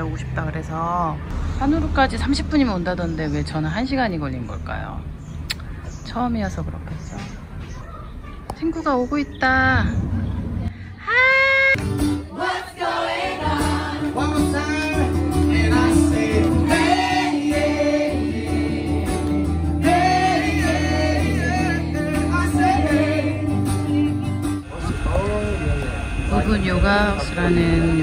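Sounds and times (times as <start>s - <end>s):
acoustic guitar: 11.2s - 26.2s
man singing: 14.0s - 18.5s, 19.8s - 23.5s.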